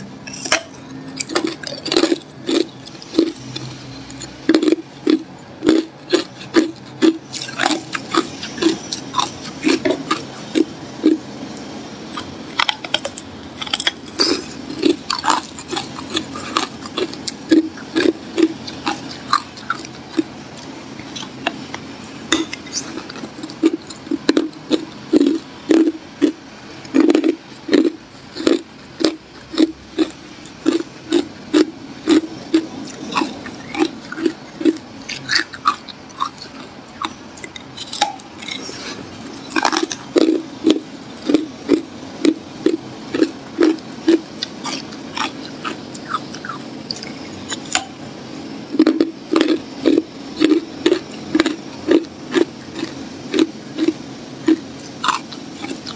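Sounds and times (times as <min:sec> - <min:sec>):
ice being crunched by chewing: 0:22.4 - 0:47.9, 0:48.8 - 0:55.9.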